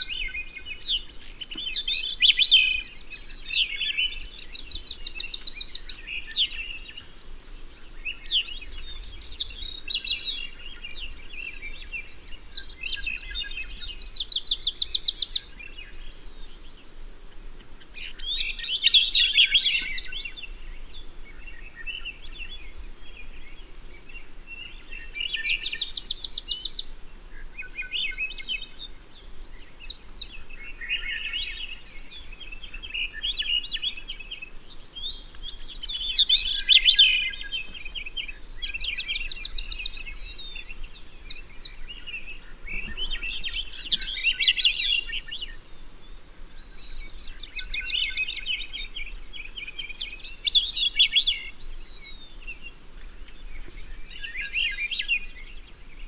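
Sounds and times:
faint low background noise: 0:00.0 - 0:56.0
songbirds singing: 0:00.0 - 0:56.0.

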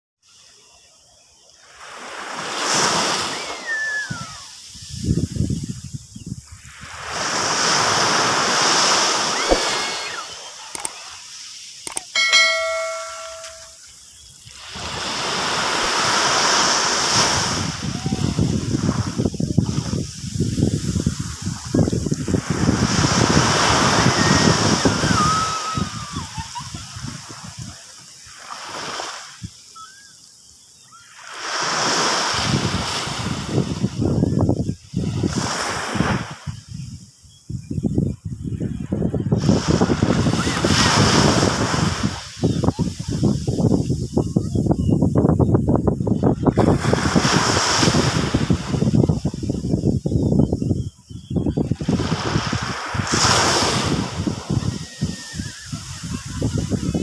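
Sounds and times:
waves washing on beach: 0:00.2 - 0:37.1, 0:38.8 - 0:44.8, 0:46.0 - 0:50.0, 0:51.6 - 0:57.0
wind rumble on microphone: 0:02.9 - 0:10.2, 0:14.2 - 0:27.9, 0:32.3 - 0:57.0
mouse click: 0:11.9 - 0:12.1
ringing chime: 0:12.2 - 0:13.9.

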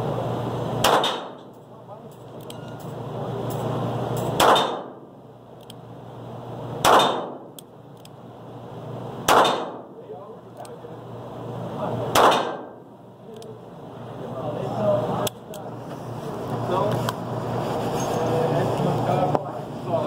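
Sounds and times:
revolver gunshots echoing: 0:00.8 - 0:01.5, 0:04.3 - 0:05.0, 0:06.8 - 0:07.6, 0:09.2 - 0:10.0, 0:12.1 - 0:12.8.

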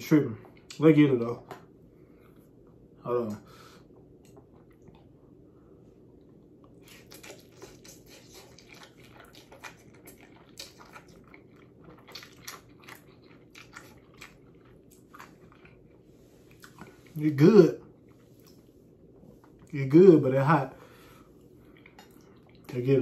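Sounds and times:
person slurping and chewing noodles: 0:06.7 - 0:17.2.

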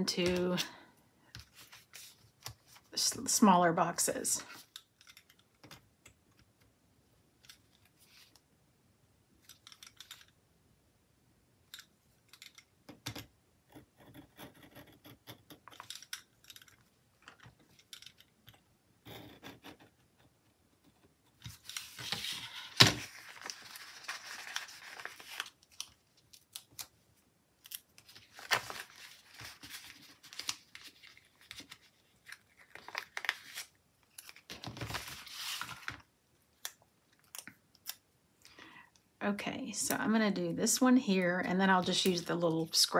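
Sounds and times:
paper rustling: 0:01.4 - 0:02.9, 0:21.4 - 0:26.8, 0:27.7 - 0:36.0.

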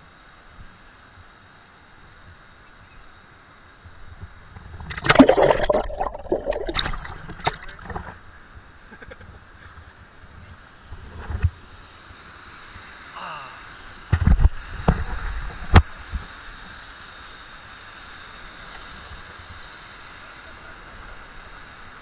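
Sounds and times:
water splashing and gurgling: 0:04.7 - 0:08.2
cascading water: 0:04.9 - 0:08.1.

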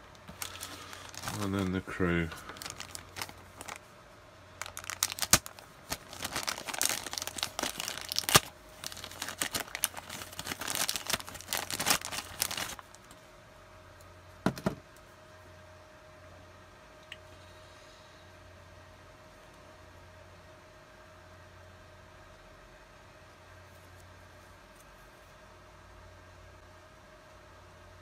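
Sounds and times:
plastic bag crinkling and tearing: 0:00.0 - 0:03.9, 0:04.6 - 0:13.2.

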